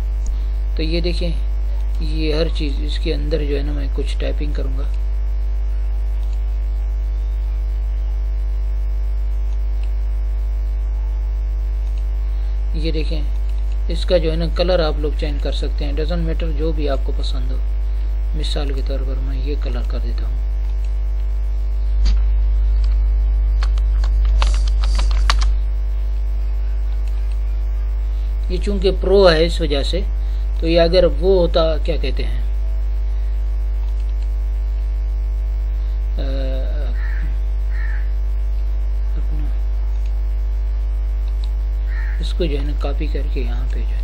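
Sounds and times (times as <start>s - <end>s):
electrical mains hum: 0.0s - 44.0s
keyboard clicks: 23.6s - 25.6s, 26.9s - 27.5s.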